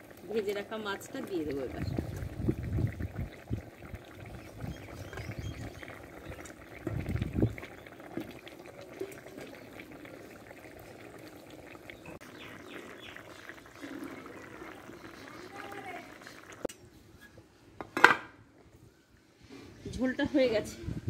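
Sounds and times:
curry bubbling in metal pot: 0.0s - 16.7s.

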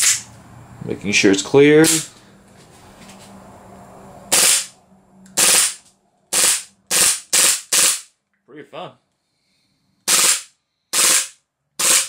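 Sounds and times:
airsoft pistol shots: 4.3s - 4.7s, 5.4s - 8.1s, 10.1s - 12.0s.

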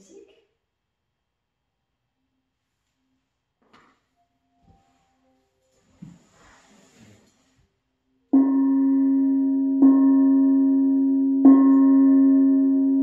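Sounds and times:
gong struck with mallet: 8.4s - 13.0s.

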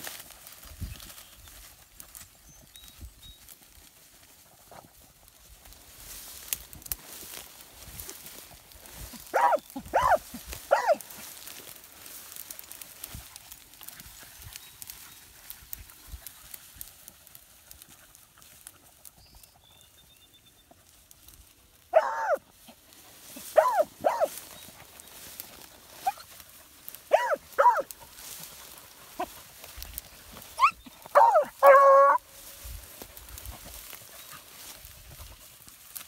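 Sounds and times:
hounds barking and baying: 9.1s - 11.5s, 21.9s - 35.5s.

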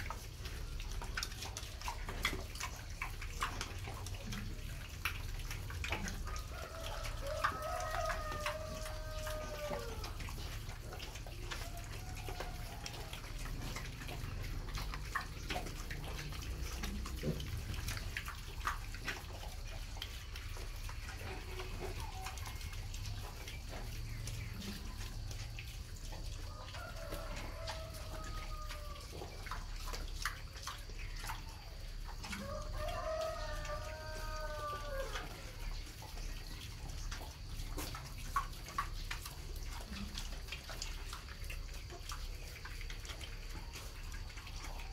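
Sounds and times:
piglets feeding: 0.0s - 44.9s
rooster crowing: 6.3s - 10.2s, 11.6s - 13.2s, 26.5s - 29.2s, 32.4s - 35.4s.

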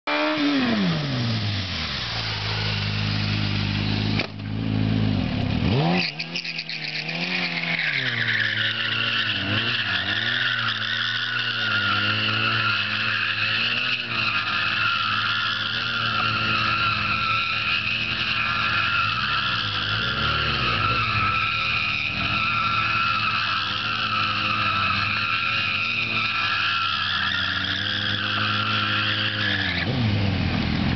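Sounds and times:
motorcycle engine revving: 0.0s - 30.9s
tyre squeal: 5.8s - 30.0s.

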